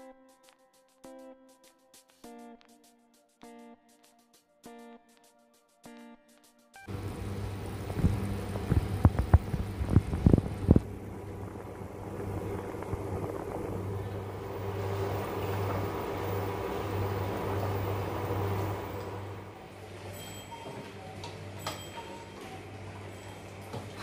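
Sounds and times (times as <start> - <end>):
water boiling in a pot: 6.9 - 20.4
low steady hum: 6.9 - 24.0.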